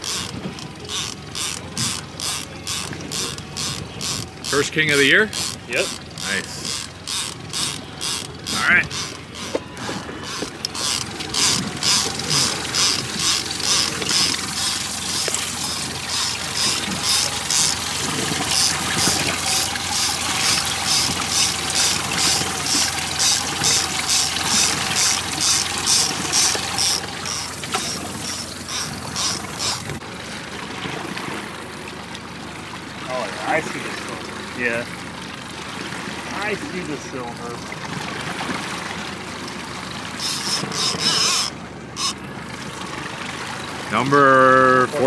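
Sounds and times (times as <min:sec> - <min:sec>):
mechanical ratcheting: 0:00.0 - 0:30.0, 0:40.2 - 0:42.2
fish thrashing and splashing: 0:00.0 - 0:44.0.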